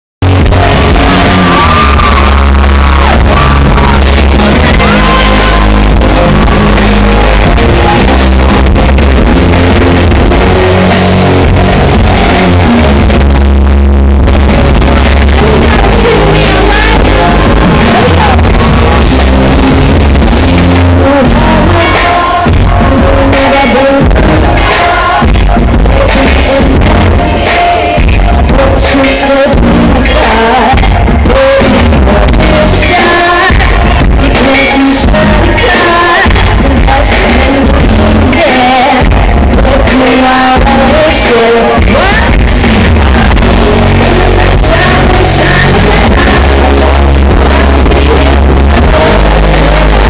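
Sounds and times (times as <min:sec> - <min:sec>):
amplified band with heavy bass: 0:00.0 - 0:50.0
woman singing: 0:00.4 - 0:50.0
audience shouting: 0:00.6 - 0:07.9.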